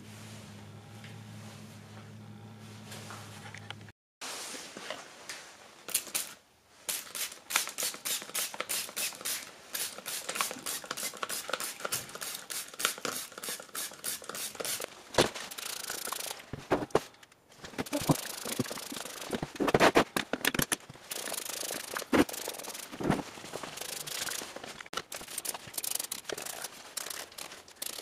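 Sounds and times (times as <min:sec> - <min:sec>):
spray bottle spritzing: 0:05.9 - 0:14.9, 0:15.5 - 0:16.4, 0:17.8 - 0:20.0, 0:21.1 - 0:28.0.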